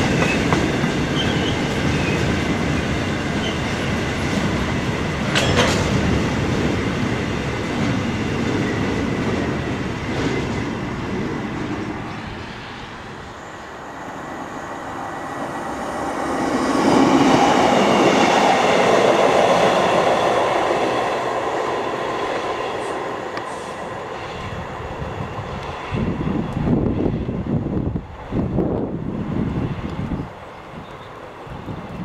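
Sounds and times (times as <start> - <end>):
diesel train passing: 0.0 - 32.0
train wheels on rails: 0.0 - 32.0.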